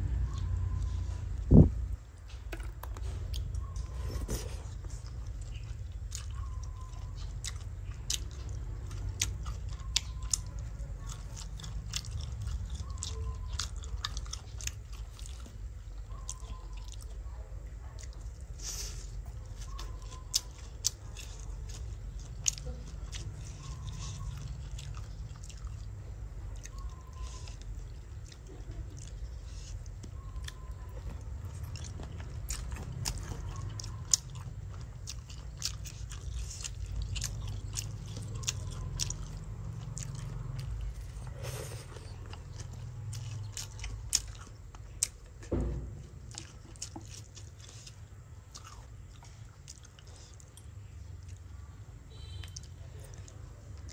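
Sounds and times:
person chewing: 0:00.0 - 0:53.9.

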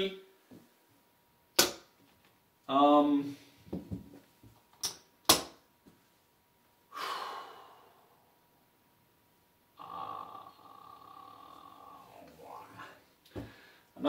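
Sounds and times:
man breathing out: 0:06.9 - 0:08.4, 0:12.7 - 0:13.9.

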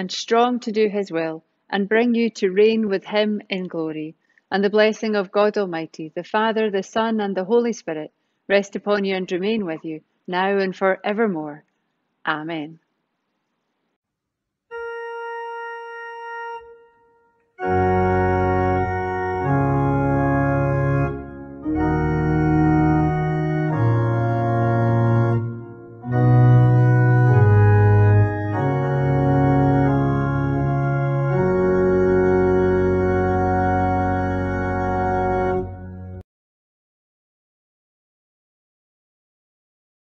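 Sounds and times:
organ playing sustained chords: 0:14.7 - 0:36.2.

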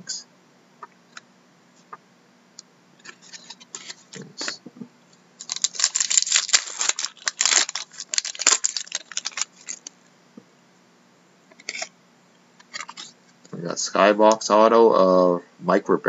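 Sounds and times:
cards rustling: 0:03.0 - 0:04.6, 0:05.4 - 0:09.9
wrapper tearing and crinkling: 0:05.4 - 0:09.9.

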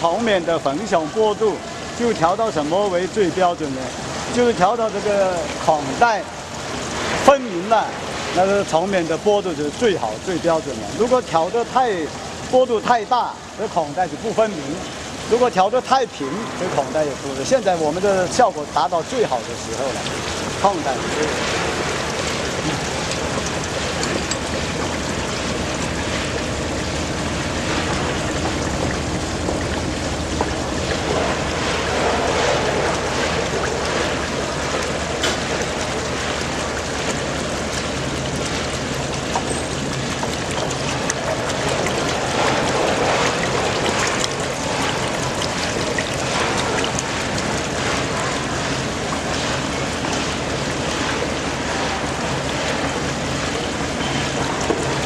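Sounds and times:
water flowing over table deck: 0:00.0 - 0:55.0
low motor hum: 0:19.4 - 0:55.0.

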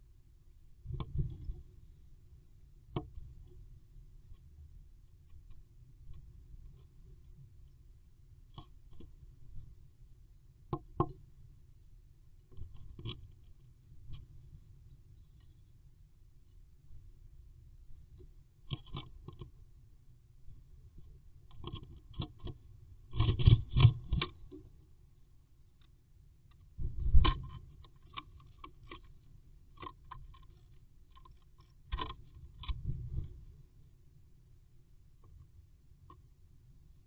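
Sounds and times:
bird tapping and scratching wood: 0:21.5 - 0:24.6, 0:26.5 - 0:33.4.

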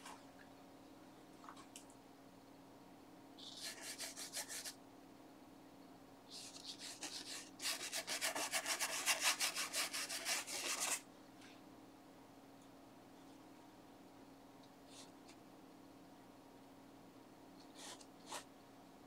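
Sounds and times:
paintbrush scrubbing canvas: 0:03.4 - 0:04.7, 0:06.4 - 0:11.0.

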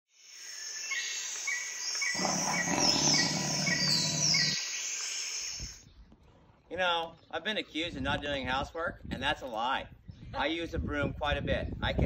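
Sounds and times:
insects chirping: 0:00.1 - 0:05.8
birds calling: 0:00.9 - 0:08.4.

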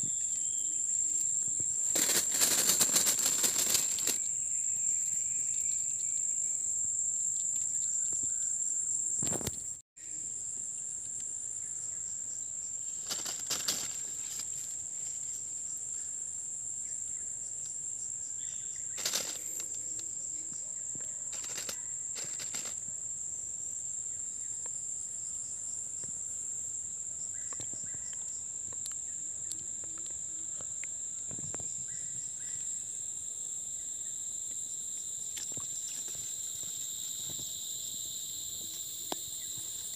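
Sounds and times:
insects trilling: 0:00.0 - 0:39.9
rustles and knocks: 0:13.0 - 0:14.7.

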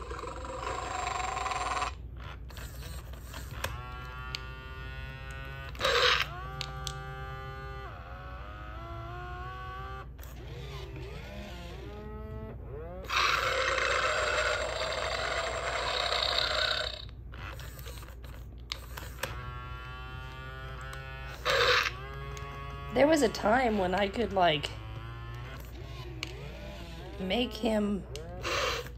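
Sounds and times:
toy dinosaur pitched calls: 0:00.0 - 0:02.0, 0:05.8 - 0:06.3, 0:13.1 - 0:17.1, 0:21.4 - 0:22.0, 0:28.4 - 0:28.9
toy dinosaur roar: 0:00.0 - 0:02.0, 0:05.7 - 0:07.0, 0:13.0 - 0:17.1, 0:21.3 - 0:22.9, 0:25.3 - 0:28.9.

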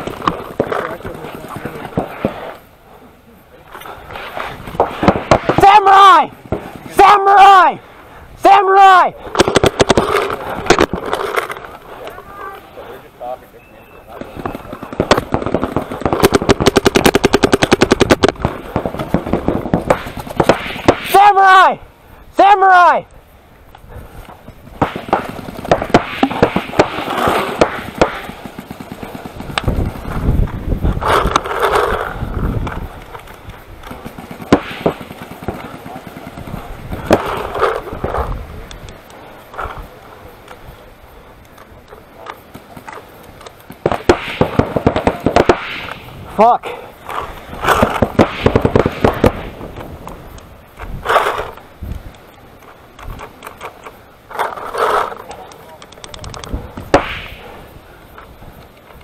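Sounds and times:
paintball markers firing: 0:09.3 - 0:11.6, 0:14.2 - 0:21.2, 0:24.8 - 0:30.3, 0:31.0 - 0:38.2, 0:47.6 - 0:50.4, 0:54.7 - 0:57.5.

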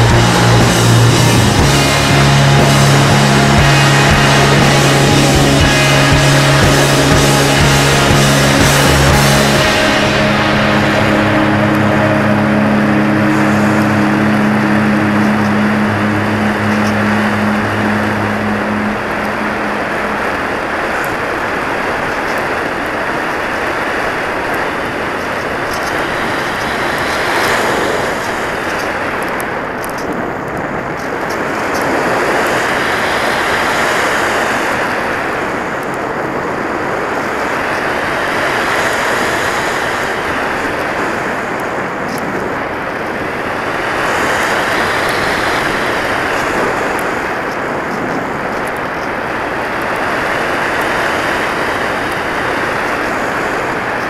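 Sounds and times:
airflow rushing: 0:00.0 - 0:29.2.

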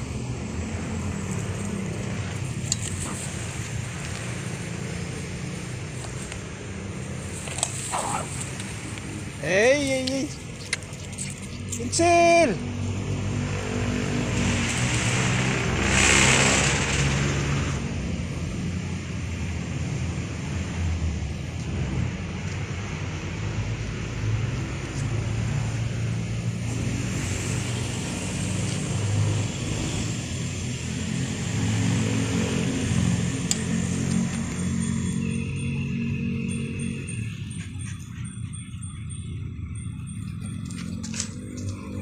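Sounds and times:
engine humming: 0:00.0 - 0:42.0
loud rush of noise: 0:12.5 - 0:18.8.

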